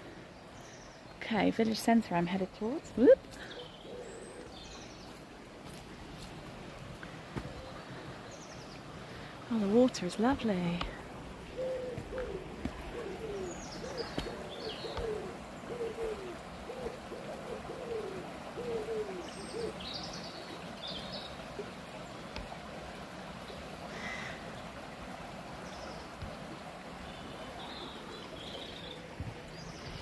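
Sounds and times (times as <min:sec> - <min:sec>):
small birds chirping: 0:00.4 - 0:05.3, 0:07.0 - 0:22.5
shallow stream rushing: 0:02.0 - 0:30.0
pigeon cooing: 0:03.4 - 0:04.6, 0:11.5 - 0:19.8.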